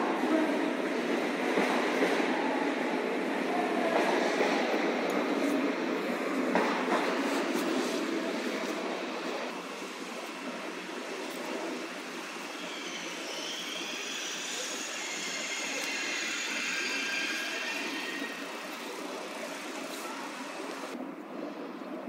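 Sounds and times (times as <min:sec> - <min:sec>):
rumble of rolling train: 0:00.0 - 0:22.0
train squealing: 0:11.5 - 0:20.9.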